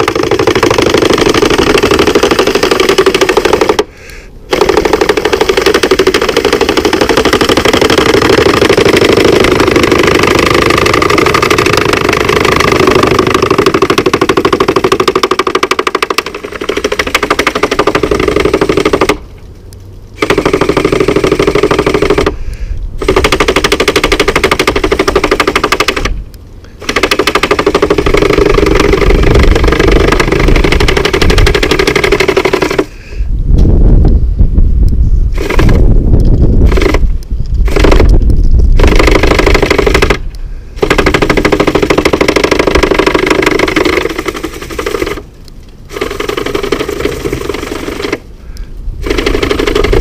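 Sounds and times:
gutter robot mechanical whir: 0:26.8 - 0:32.9, 0:35.3 - 0:45.2, 0:49.0 - 0:50.0.

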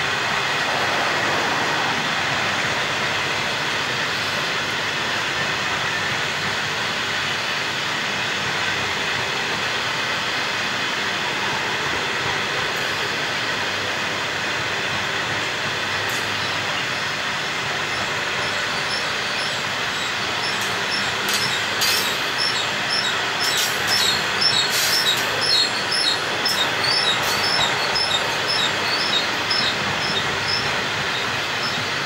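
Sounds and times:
train wheels rolling on rail: 0:00.0 - 0:32.0
high-pitched wheel squeals: 0:17.9 - 0:32.0.

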